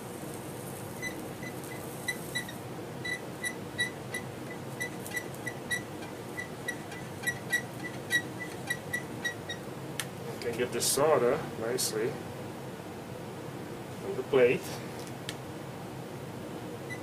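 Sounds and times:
soldering gun humming: 0.0 - 10.3.

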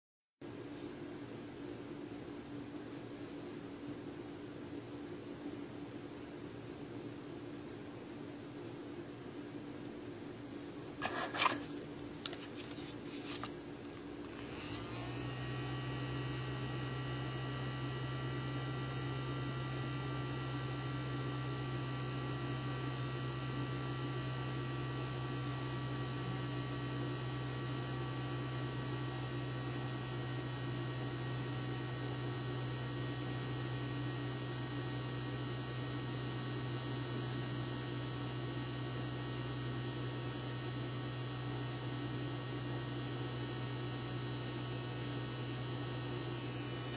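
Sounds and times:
machine hum: 11.0 - 46.9.

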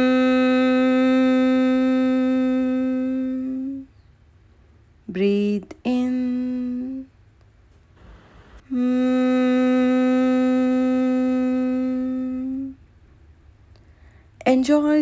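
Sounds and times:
closed-mouth humming: 0.0 - 4.2, 5.1 - 14.8
woman breathing in: 13.8 - 14.4.

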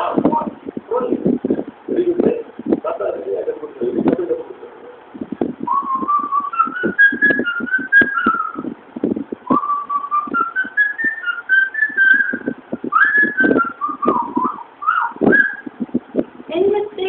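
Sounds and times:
short low thumps: 0.0 - 3.0, 3.8 - 17.0
person whistling a tune: 5.7 - 8.7, 9.4 - 15.7.

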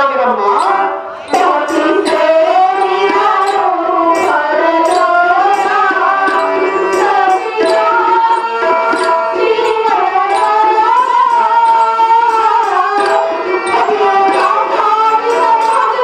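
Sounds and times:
person singing: 0.0 - 16.0
sustained instrumental accompaniment: 0.0 - 16.0
drum strokes: 0.5 - 16.0.

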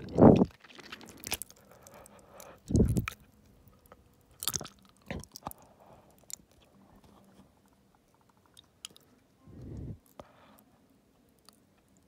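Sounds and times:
wet mouth clicks and smacks: 2.7 - 3.2.

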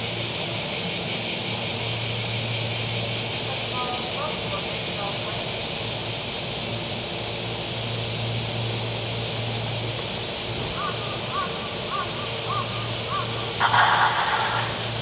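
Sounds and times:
electric train humming: 0.0 - 15.0
bird calling: 10.7 - 15.0.

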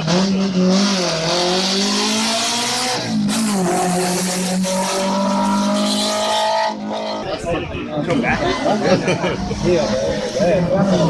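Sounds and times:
racing car engine accelerating: 0.0 - 7.5.

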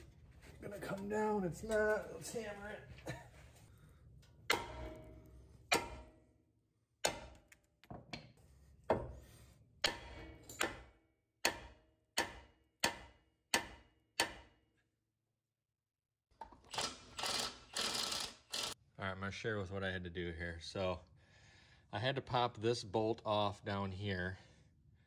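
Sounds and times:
hammer striking steel: 4.5 - 6.3, 9.8 - 14.6.

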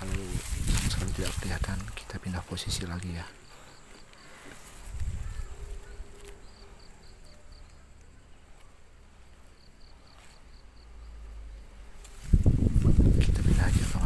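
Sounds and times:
insects chirping: 0.0 - 14.0.

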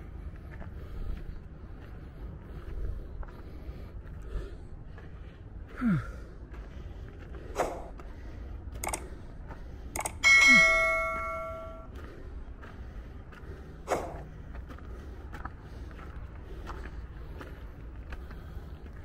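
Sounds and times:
low wind rumble: 0.0 - 19.0
bell-like notification chime: 10.2 - 11.9
footsteps on gravel: 11.9 - 19.0.

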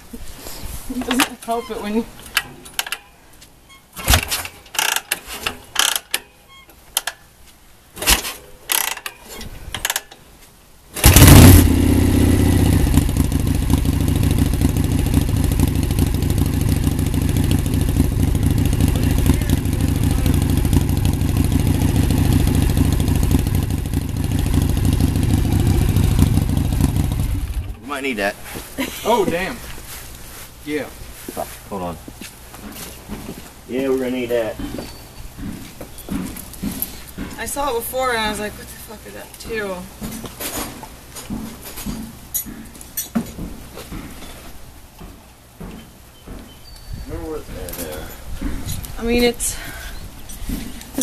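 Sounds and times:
motorcycle engine running: 11.0 - 27.8.

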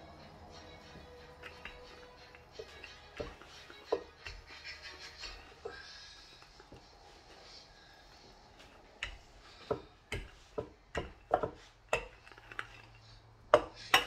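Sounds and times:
rolling pin knocking on wooden board: 2.6 - 4.5, 9.0 - 12.2.

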